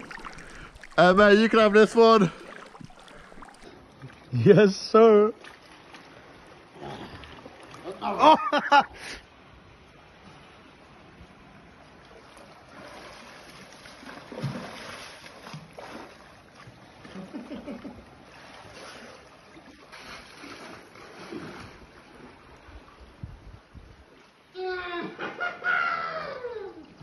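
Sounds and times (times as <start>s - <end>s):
sea water washing in rocks: 0.0s - 4.4s
wind on microphone: 22.6s - 24.1s.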